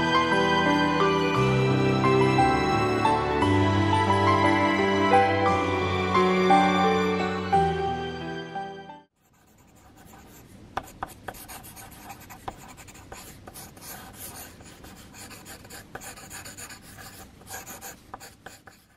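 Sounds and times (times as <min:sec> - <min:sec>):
pencil sketching on paper: 0:09.2 - 0:18.9
pencil lead tapping: 0:09.6 - 0:18.9.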